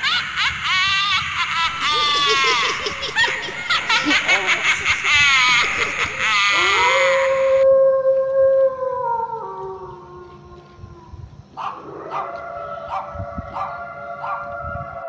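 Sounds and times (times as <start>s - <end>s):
dog howling: 6.4s - 15.0s.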